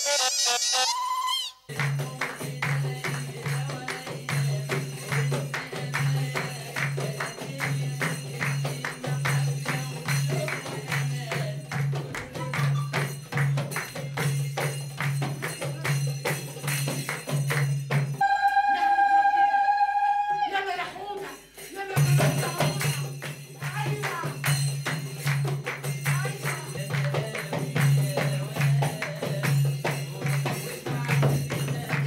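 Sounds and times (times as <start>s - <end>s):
high electronic tone: 0.0s - 1.6s
tambourine strokes: 1.7s - 18.2s, 21.2s - 32.0s.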